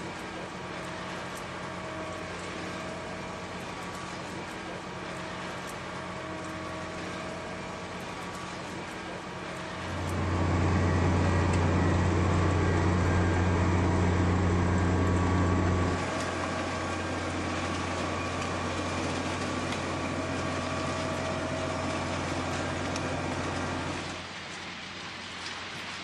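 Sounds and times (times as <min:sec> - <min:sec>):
track machine humming: 0:09.8 - 0:24.2.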